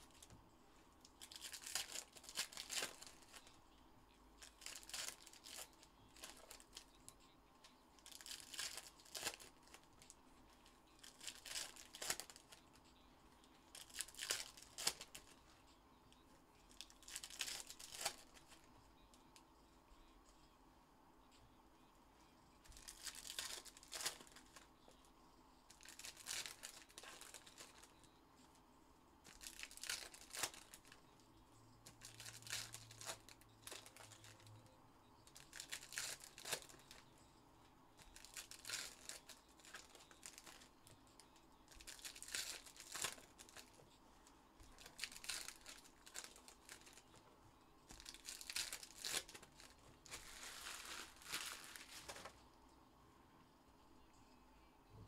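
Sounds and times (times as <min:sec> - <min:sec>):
wrappers tearing and crinkling: 0:01.1 - 0:03.6, 0:04.4 - 0:07.0, 0:08.0 - 0:10.2, 0:11.0 - 0:12.7, 0:13.7 - 0:15.4, 0:16.7 - 0:18.7, 0:22.6 - 0:24.7, 0:25.7 - 0:27.9, 0:29.3 - 0:31.0, 0:31.9 - 0:34.5, 0:35.3 - 0:37.0, 0:38.0 - 0:40.7, 0:41.7 - 0:43.8, 0:44.6 - 0:47.2, 0:47.8 - 0:52.4.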